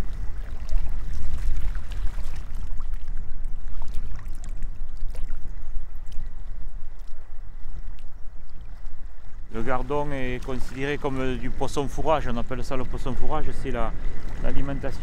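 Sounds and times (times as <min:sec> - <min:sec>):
small waves lapping: 0:00.0 - 0:15.0
wind buffeting microphone: 0:00.0 - 0:15.0.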